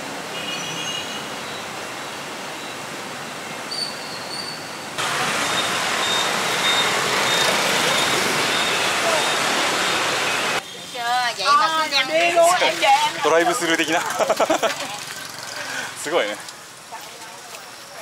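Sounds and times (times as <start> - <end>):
road traffic: 0.0 - 18.0.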